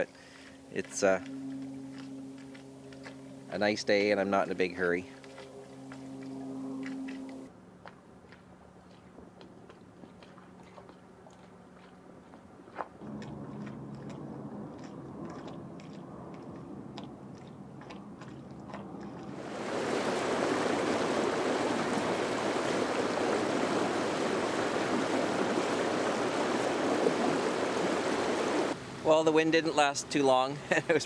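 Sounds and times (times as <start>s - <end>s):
low hum: 0.0s - 7.5s, 13.0s - 28.8s
water rushing along hull: 0.0s - 7.5s, 8.2s - 31.0s.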